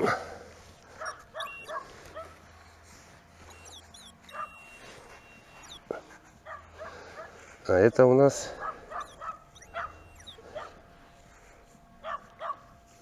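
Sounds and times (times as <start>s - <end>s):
dog yipping and barking: 0.9s - 2.4s, 3.4s - 7.3s, 8.5s - 10.8s, 12.0s - 12.6s.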